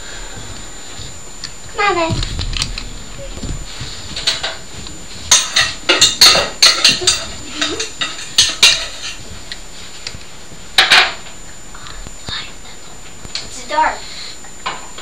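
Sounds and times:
dishes and cutlery clattering: 5.3 - 9.2.

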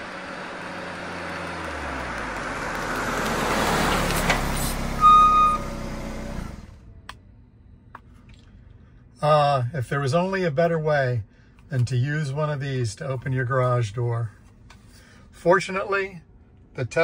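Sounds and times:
car engine and road noise: 0.0 - 17.0
short high-pitched tone: 5.0 - 5.7.

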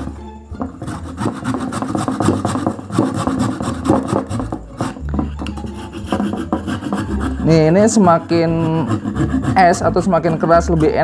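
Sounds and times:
frozen meat scraping on grater: 0.8 - 5.0, 5.8 - 11.0.

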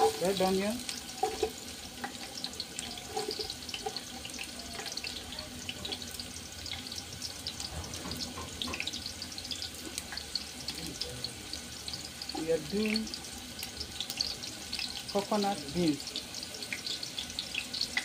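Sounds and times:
hot oil crackling and spitting: 0.0 - 18.0.

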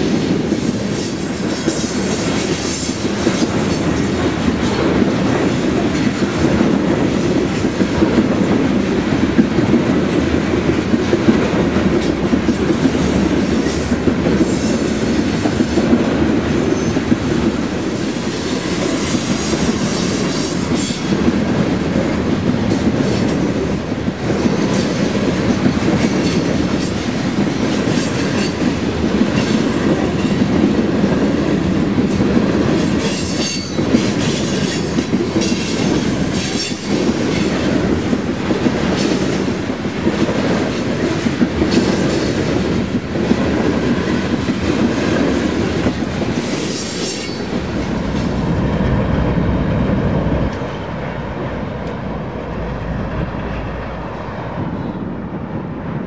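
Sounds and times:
train wheels clacking over rail joints: 0.0 - 49.3
deep diesel locomotive rumble: 47.5 - 55.9.

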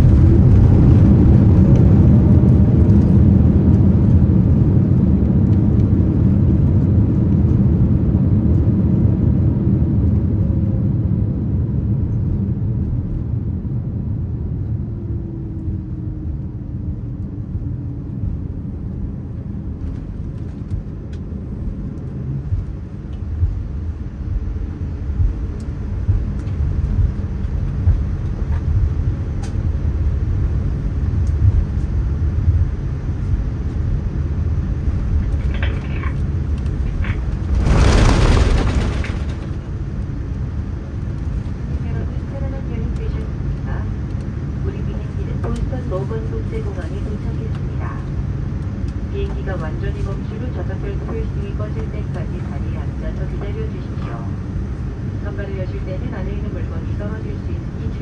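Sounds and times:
low rumble of engines and wheels: 0.0 - 58.0
faint falling whine: 35.2 - 40.4
short jolts: 37.4 - 39.7.

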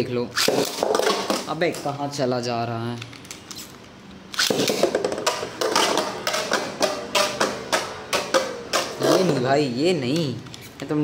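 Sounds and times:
spinning top hitting plastic wall: 4.5 - 9.4.

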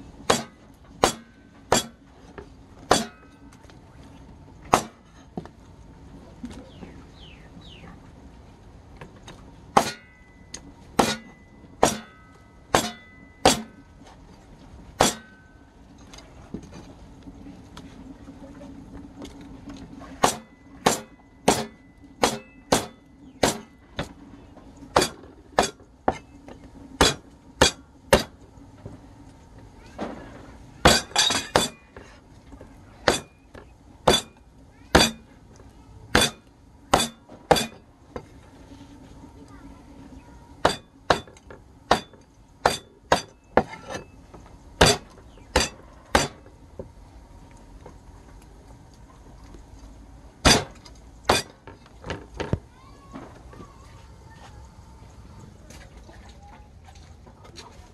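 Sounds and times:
cleaver chopping on wooden block: 0.3 - 2.0, 4.7 - 5.0, 11.0 - 12.1, 20.2 - 23.7, 27.0 - 28.3, 44.8 - 46.4.

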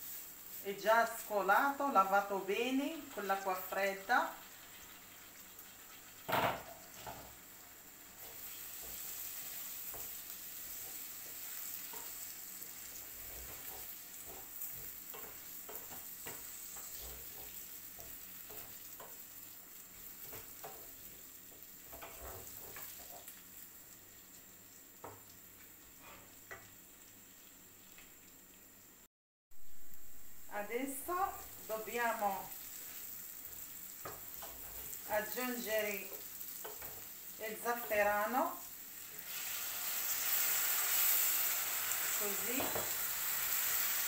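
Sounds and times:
rice sizzling in a frying pan: 0.0 - 44.0
wooden spoon scraping a pan: 8.2 - 19.2, 19.9 - 23.4, 25.8 - 26.7, 34.0 - 37.2.

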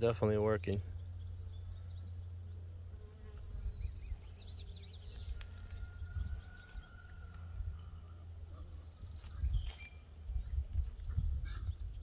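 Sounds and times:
bird chirping: 0.5 - 12.0.

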